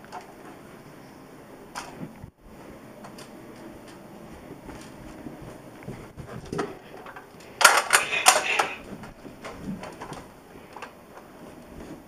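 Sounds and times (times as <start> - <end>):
plastic toy blaster clacks: 7.6 - 8.8.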